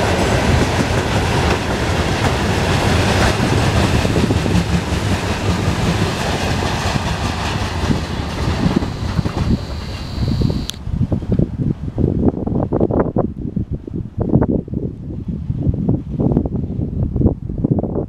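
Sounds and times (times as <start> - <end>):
train wheels clattering over rail joints: 0.0 - 9.9
wind buffeting microphone: 0.0 - 18.0.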